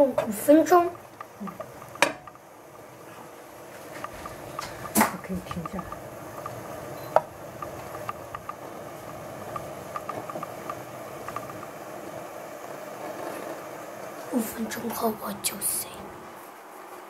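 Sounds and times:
ham frying in a pan: 0:00.0 - 0:14.1
small ticks and pops: 0:00.3 - 0:03.0, 0:03.8 - 0:12.9.

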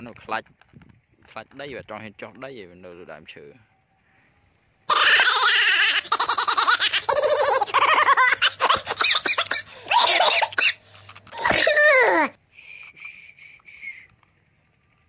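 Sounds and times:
high-pitched voice laughing: 0:04.9 - 0:12.3.

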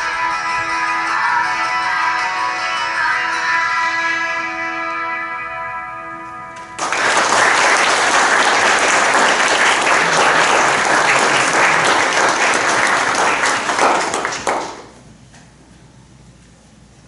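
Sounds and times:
congregation applauding: 0:06.6 - 0:15.0.

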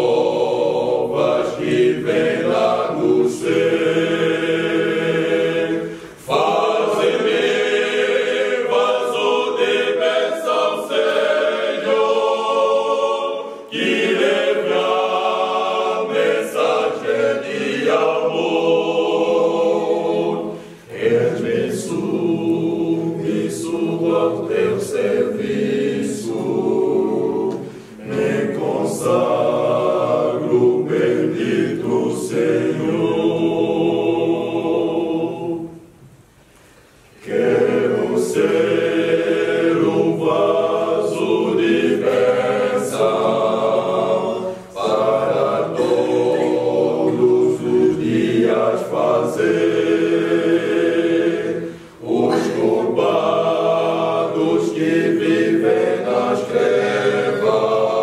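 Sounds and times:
men's choir singing in harmony: 0:00.0 - 0:36.1, 0:37.2 - 0:58.0
singers breathing: 0:05.8 - 0:06.3, 0:20.5 - 0:20.9, 0:27.6 - 0:28.0, 0:36.3 - 0:37.1, 0:44.4 - 0:44.8, 0:51.6 - 0:52.0.

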